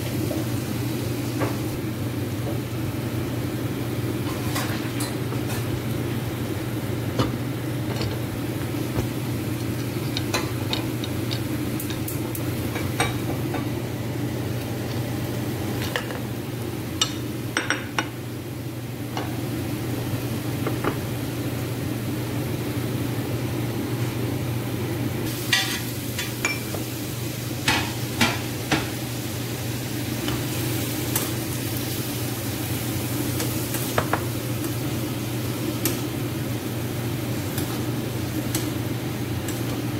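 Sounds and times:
light sizzling: 0:04.1 - 0:18.2, 0:25.2 - 0:39.9.

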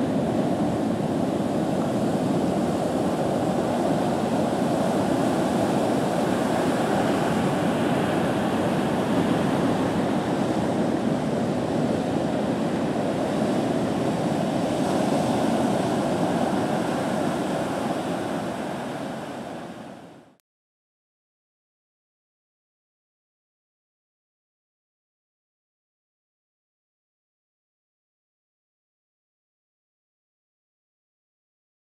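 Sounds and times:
ocean waves breaking: 0:00.0 - 0:20.4.

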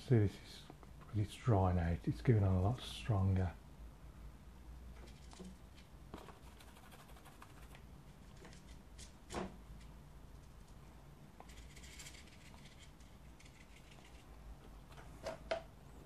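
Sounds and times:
low room hum: 0:00.0 - 0:16.0
brush scratching on paper: 0:06.2 - 0:07.8.

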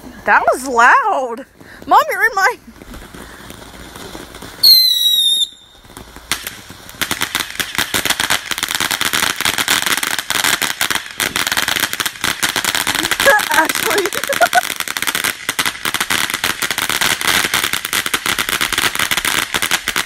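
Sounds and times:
firework sparks crackling: 0:00.0 - 0:20.0
loud high whistle: 0:04.6 - 0:05.7.

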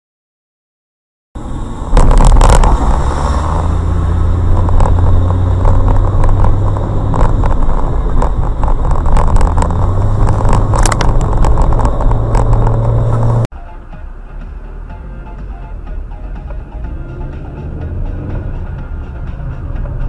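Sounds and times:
car engine and road drone: 0:01.4 - 0:20.0
knocks and clicks: 0:02.0 - 0:03.1, 0:03.8 - 0:13.5.

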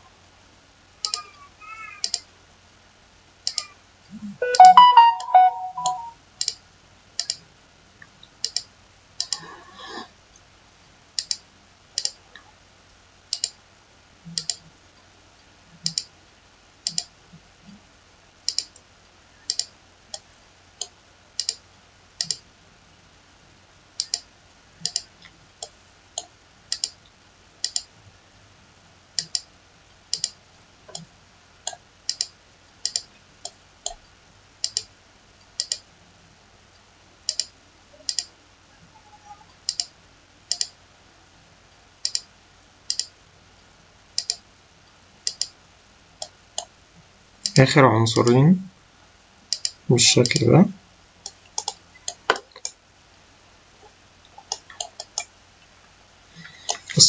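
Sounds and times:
computer mouse clicking: 0:02.0 - 0:02.3, 0:03.4 - 0:03.7, 0:04.6 - 0:06.6, 0:07.2 - 0:07.4, 0:08.4 - 0:09.5, 0:11.2 - 0:11.4, 0:12.0 - 0:12.2, 0:13.3 - 0:13.6, 0:14.4 - 0:14.6, 0:15.8 - 0:16.1, 0:16.8 - 0:17.1, 0:18.5 - 0:18.8, 0:19.5 - 0:20.2, 0:20.8 - 0:21.6, 0:22.2 - 0:22.4, 0:24.0 - 0:27.0, 0:27.6 - 0:27.9, 0:29.2 - 0:29.5, 0:30.1 - 0:31.1, 0:31.7 - 0:34.0, 0:34.6 - 0:34.9, 0:35.5 - 0:35.8, 0:37.3 - 0:37.5, 0:38.1 - 0:38.3, 0:39.7 - 0:39.9, 0:40.5 - 0:40.8, 0:42.0 - 0:42.3, 0:42.9 - 0:43.1, 0:44.2 - 0:44.4, 0:45.2 - 0:45.6, 0:49.5 - 0:50.4, 0:51.2 - 0:52.8, 0:54.4 - 0:55.3.

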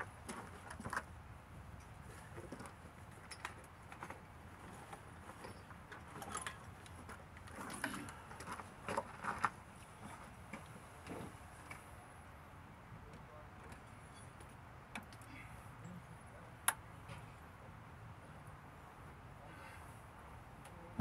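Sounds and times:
tools clinking and rattling: 0:02.5 - 0:09.4.

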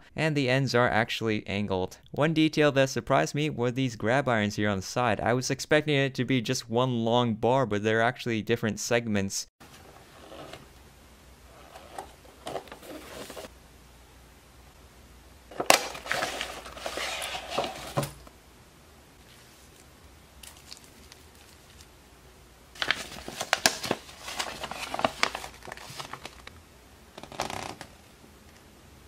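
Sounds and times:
plastic and paper crinkling: 0:11.6 - 0:13.5, 0:15.5 - 0:18.3, 0:19.2 - 0:21.9, 0:22.7 - 0:26.6, 0:27.2 - 0:28.0.

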